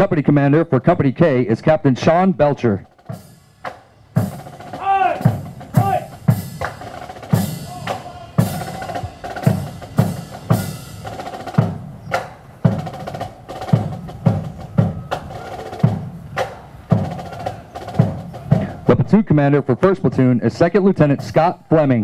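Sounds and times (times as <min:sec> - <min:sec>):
military marching band: 0:02.6 - 0:22.0
strong drum beat: 0:02.8 - 0:19.1.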